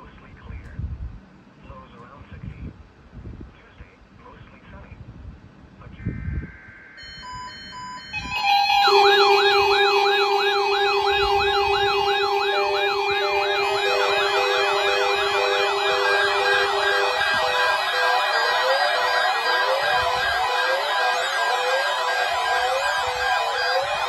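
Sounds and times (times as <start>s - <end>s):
fast warbling siren tones: 6.1s - 24.0s
steady alarm tone: 6.1s - 24.0s
short beeps: 7.0s - 20.5s.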